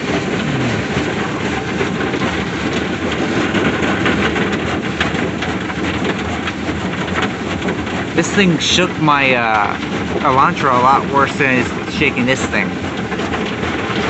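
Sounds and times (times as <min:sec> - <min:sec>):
car wash brushes slapping on roof: 0:01.1 - 0:08.2.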